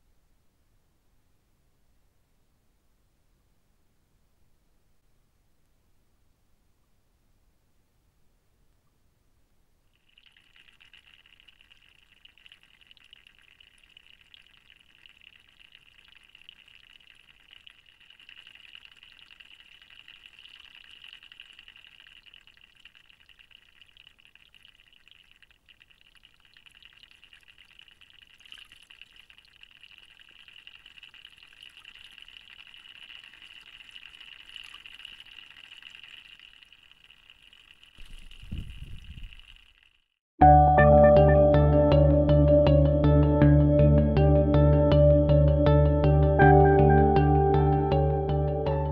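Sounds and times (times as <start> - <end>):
water trickling into pool: 9.9 - 40.2.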